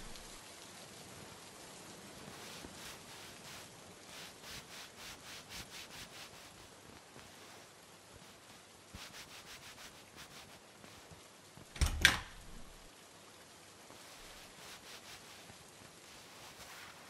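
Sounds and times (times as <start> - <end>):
faint scraping strokes: 2.2 - 11.2, 13.9 - 17.0.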